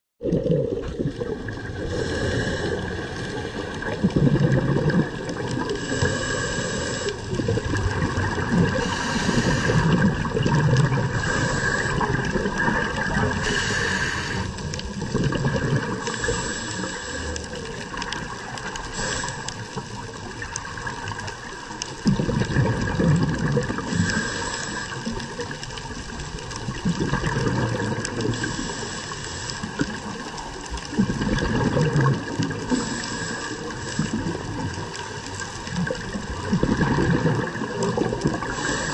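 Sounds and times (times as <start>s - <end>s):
underwater regulator bubbles: 0.2s - 38.9s
steady hiss: 5.8s - 7.4s, 8.7s - 10.2s, 11.1s - 14.8s, 16.0s - 20.4s, 23.9s - 25.8s, 28.3s - 30.6s, 32.6s - 35.4s, 38.4s - 38.9s.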